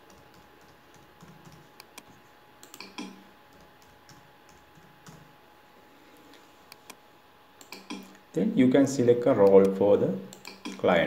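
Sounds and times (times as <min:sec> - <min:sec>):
computer keyboard clicks: 0:00.1 - 0:05.2.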